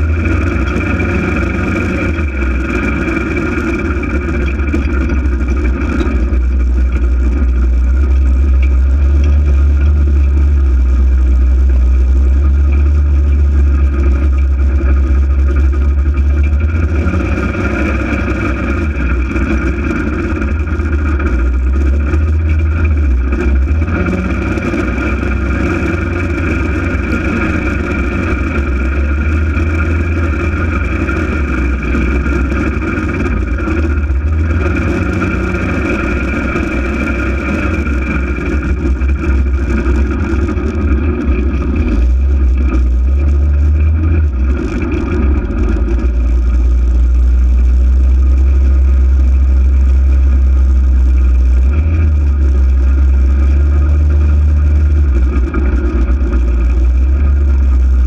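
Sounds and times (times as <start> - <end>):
engine drone with whine: 0.0 - 58.0.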